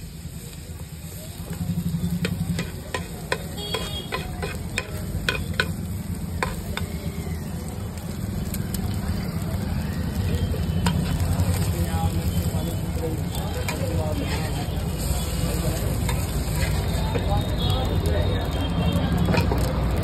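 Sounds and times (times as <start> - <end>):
oil sizzling: 0.0 - 20.0
metal spatula scraping a pan: 2.2 - 5.8, 13.4 - 17.5.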